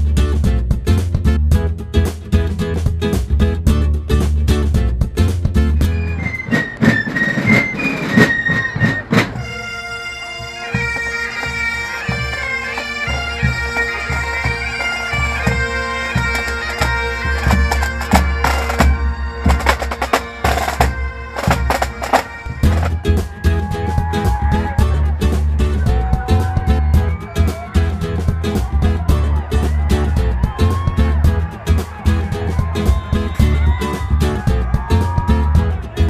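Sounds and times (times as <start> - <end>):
snare and bass drums: 0.0 - 9.8, 10.4 - 36.0
high shrill fife melody: 5.8 - 23.7
bagpipes playing over drones: 7.4 - 23.1.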